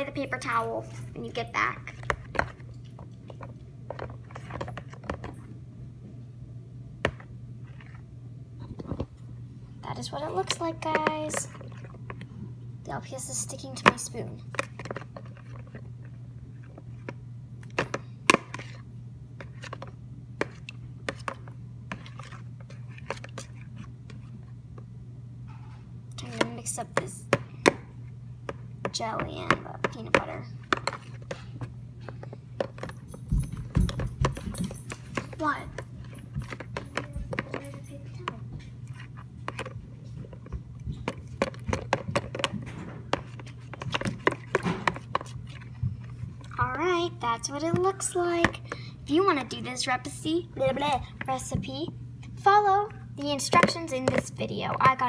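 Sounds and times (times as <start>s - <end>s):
spoon stirring in plastic bowl: 0.2s - 5.6s, 7.0s - 9.1s, 10.1s - 12.4s, 13.3s - 51.8s, 53.2s - 55.0s
metal spoon scraping plastic tub: 41.0s - 46.6s, 53.2s - 55.0s.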